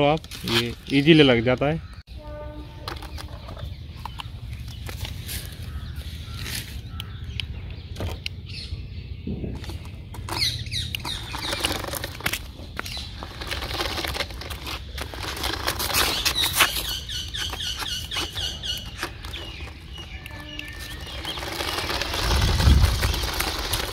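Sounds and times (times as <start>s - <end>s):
toy car clattering over bricks: 9.6s - 23.9s
toy car electric motors whirring: 10.2s - 23.9s.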